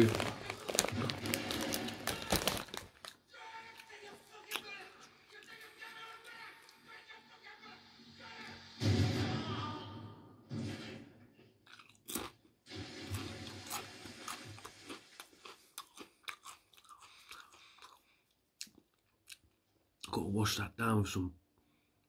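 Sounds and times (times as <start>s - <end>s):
chewing crunchy chips: 0.0s - 6.9s, 11.6s - 12.5s, 13.1s - 20.1s.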